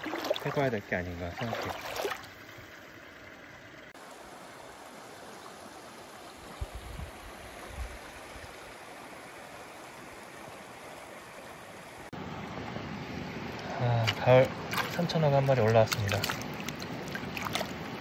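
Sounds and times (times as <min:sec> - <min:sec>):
stream rushing over stones: 0:00.0 - 0:02.7, 0:13.5 - 0:18.0.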